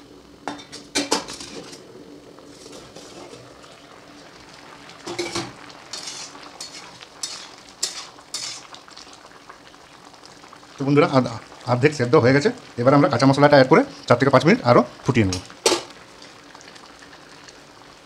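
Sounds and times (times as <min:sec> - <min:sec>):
spatula scraping and stirring pan: 0:02.5 - 0:03.5, 0:05.0 - 0:08.8.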